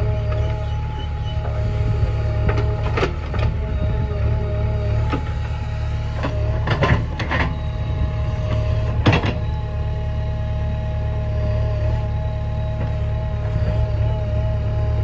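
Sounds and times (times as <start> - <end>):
diesel engine under load: 0.0 - 15.0
hydraulic whine: 0.0 - 15.0.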